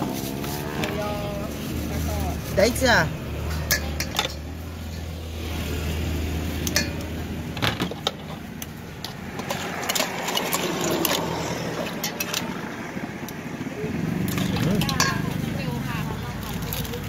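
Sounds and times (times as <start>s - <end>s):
metal spoon clinking in steel bowl: 3.5s - 5.2s, 6.6s - 7.1s, 14.3s - 15.4s.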